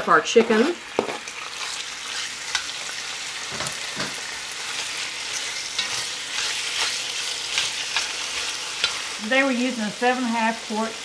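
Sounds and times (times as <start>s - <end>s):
chicken sizzling in oil: 0.0s - 11.0s.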